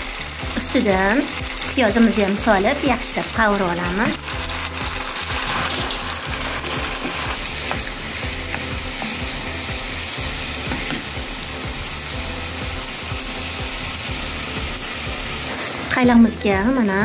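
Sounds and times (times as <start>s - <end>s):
onions and meat sizzling in pan: 0.0s - 17.0s.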